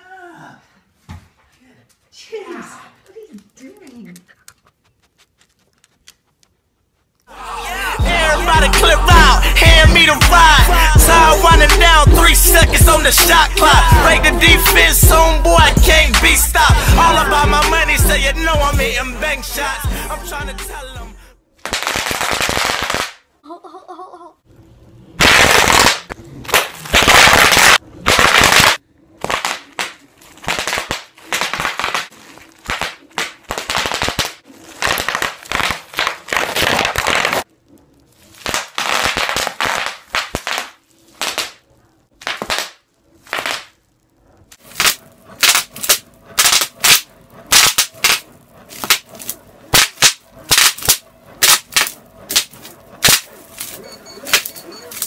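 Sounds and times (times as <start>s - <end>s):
bubble wrap popping: 25.2s - 41.6s, 42.2s - 55.0s.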